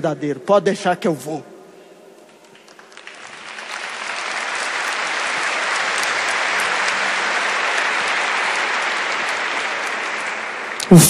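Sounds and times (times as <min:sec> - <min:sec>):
large audience applauding: 0:02.2 - 0:11.0.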